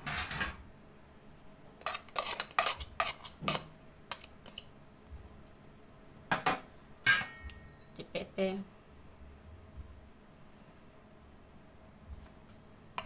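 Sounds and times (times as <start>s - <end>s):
metal spoon clinking on steel bowls: 7.1s - 8.0s.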